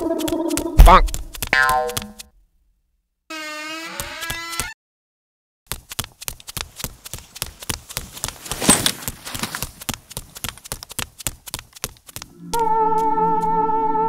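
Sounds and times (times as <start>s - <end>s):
goat hoofbeats clattering: 5.7s - 12.3s.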